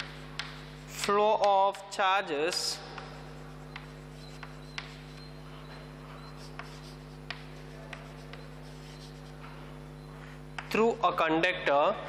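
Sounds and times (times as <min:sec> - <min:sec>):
chalk scratching on chalkboard: 0:00.0 - 0:01.0, 0:02.5 - 0:09.7
chalk tapping board: 0:00.0 - 0:01.9, 0:02.5 - 0:09.6, 0:10.2 - 0:10.8.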